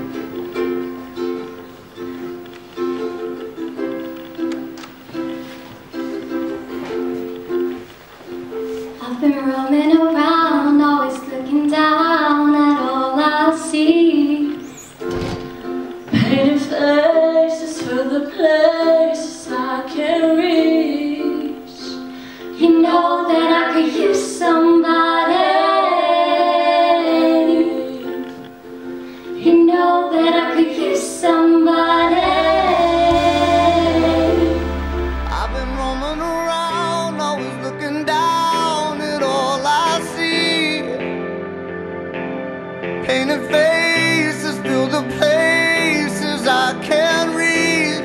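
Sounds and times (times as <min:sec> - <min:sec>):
strummed ukulele: 0:00.0 - 0:09.2, 0:14.1 - 0:24.9, 0:27.1 - 0:40.8
girls singing: 0:16.1 - 0:22.0, 0:22.6 - 0:28.3, 0:29.4 - 0:36.3.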